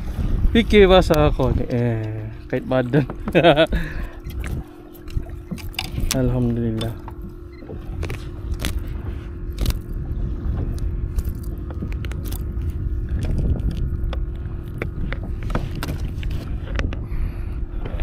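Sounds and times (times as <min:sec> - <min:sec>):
faint steady hum: 0:00.0 - 0:18.0
low rumble: 0:00.0 - 0:18.0
kayak handling clicks and knocks: 0:02.8 - 0:17.1.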